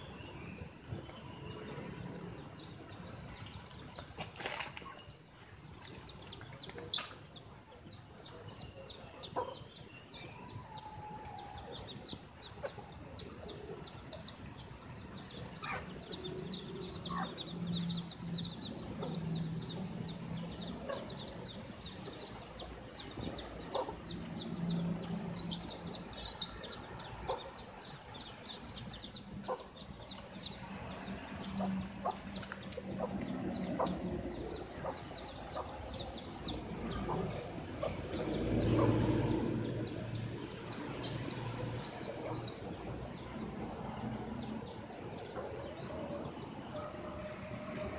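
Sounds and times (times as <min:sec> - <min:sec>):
chicks peeping: 0:05.8 - 0:43.8.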